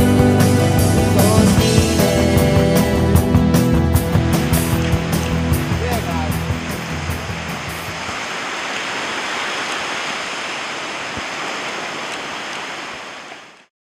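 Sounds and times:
background music: 0.0s - 8.0s
small waves washing onto beach: 4.3s - 13.7s.

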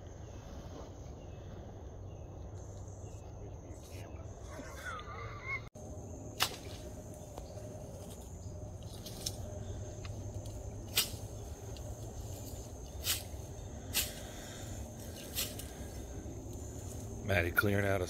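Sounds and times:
reed stems snapping: 6.4s - 17.0s.

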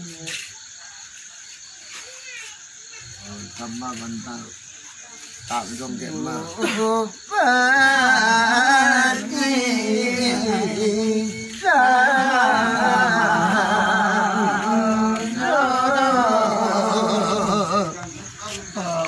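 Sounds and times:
voices singing slow phrases: 5.4s - 19.0s.

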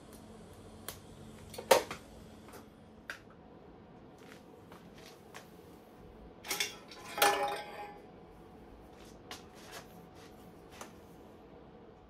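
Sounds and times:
metal exhaust pipe clinking: 6.4s - 8.0s.

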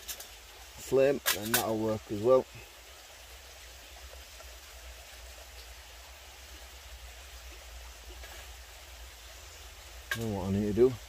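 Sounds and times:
twigs tapping into a metal stove: 0.0s - 2.2s, 8.0s - 8.8s, 9.8s - 10.9s
outdoor background hiss: 0.0s - 11.0s.

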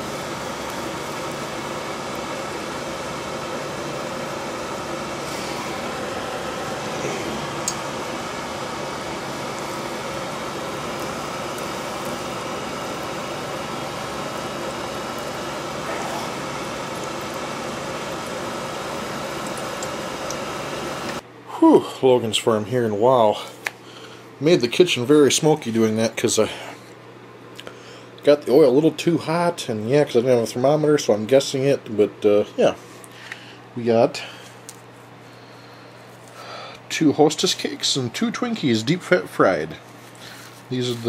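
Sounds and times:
oil sizzling: 0.0s - 21.2s
steady mechanical hum: 0.0s - 41.0s.

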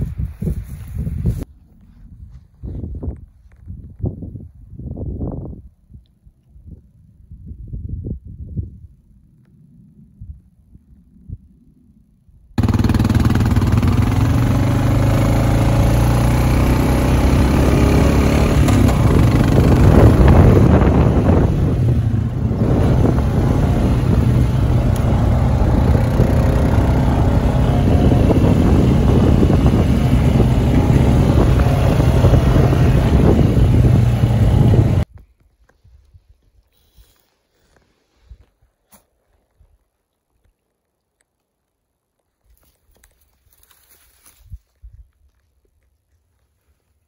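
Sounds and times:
wind buffeting microphone: 0.0s - 11.8s, 12.6s - 36.6s.

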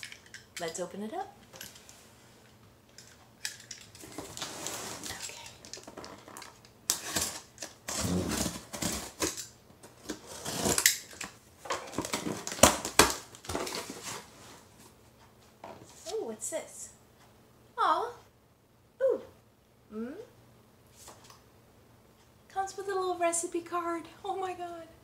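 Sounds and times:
cardboard scraping and rustling: 4.0s - 5.2s, 7.0s - 9.3s, 10.0s - 10.9s, 13.4s - 14.7s.

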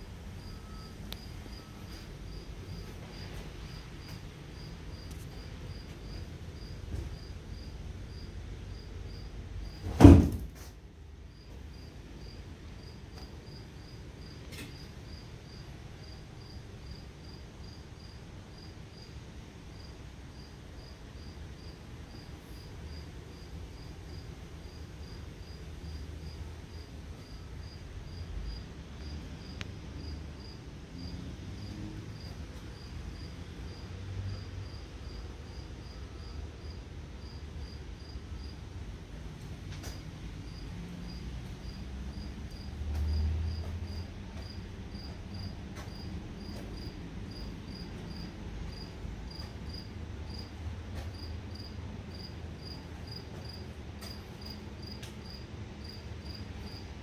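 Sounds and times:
cricket chirping: 0.4s - 9.8s, 11.3s - 38.7s, 39.9s - 56.9s
loud knock: 9.9s - 10.5s.

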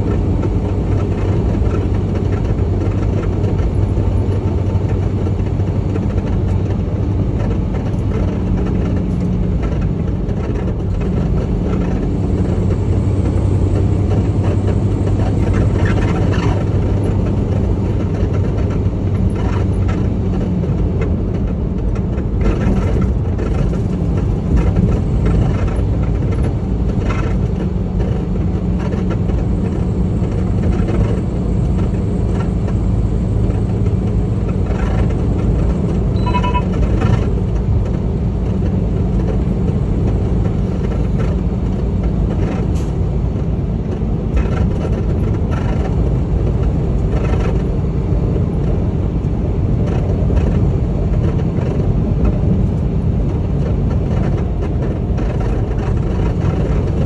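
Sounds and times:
road noise: 0.0s - 57.0s
truck engine drone: 0.0s - 57.0s
short electronic beep: 36.2s - 36.8s.

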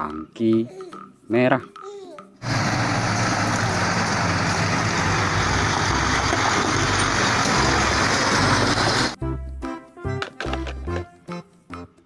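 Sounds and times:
diesel truck engine running: 2.4s - 9.2s.

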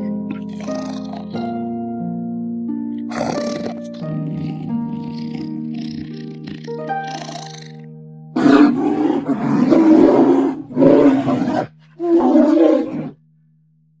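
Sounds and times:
large animal roaring: 0.3s - 1.4s, 3.1s - 7.8s, 8.4s - 13.2s.

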